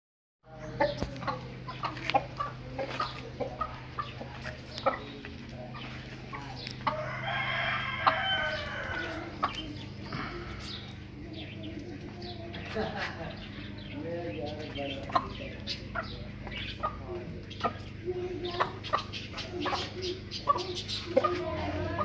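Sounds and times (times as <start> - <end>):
chickens clucking: 0.5 - 22.0
low hum: 0.7 - 18.4
rooster crowing: 6.8 - 9.4.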